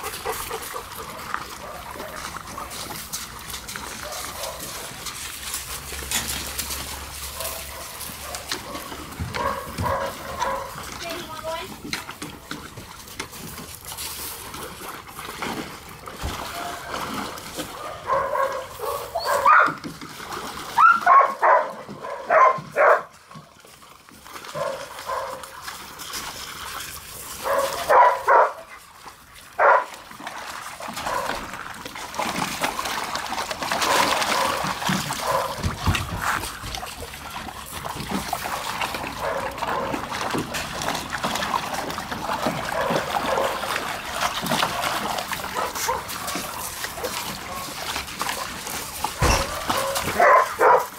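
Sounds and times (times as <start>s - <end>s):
dogs barking: 0.0s - 2.8s, 3.9s - 5.0s, 7.3s - 10.9s, 17.6s - 19.8s, 20.8s - 23.1s, 24.5s - 25.5s, 27.4s - 28.8s, 29.6s - 30.0s, 31.0s - 31.5s, 33.7s - 35.8s, 38.5s - 40.3s, 42.4s - 43.8s, 45.4s - 47.8s, 49.2s - 50.9s
water sloshing and splashing: 0.0s - 50.9s.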